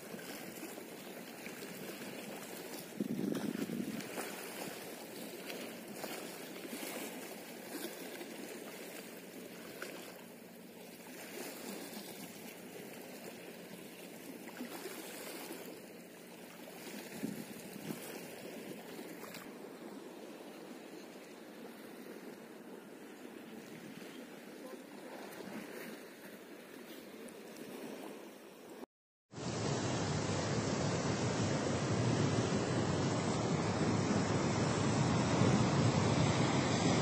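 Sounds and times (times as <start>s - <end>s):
sea water splashing on rocks: 0.0s - 8.4s.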